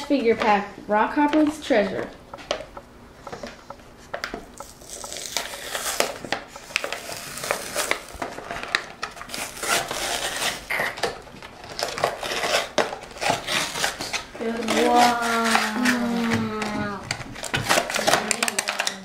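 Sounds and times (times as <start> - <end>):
plastic blister crackling: 1.3 - 19.0
cardboard tearing: 6.8 - 16.2.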